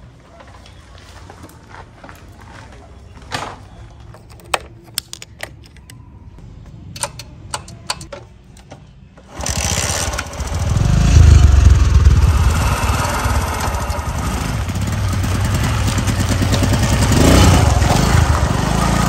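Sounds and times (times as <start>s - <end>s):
motorcycle engine starting and running: 9.2s - 19.0s.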